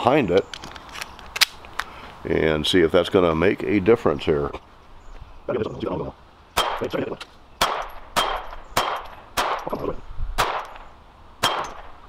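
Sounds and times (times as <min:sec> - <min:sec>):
pistol shots: 0:06.6 - 0:07.0, 0:07.6 - 0:09.8, 0:10.4 - 0:12.0.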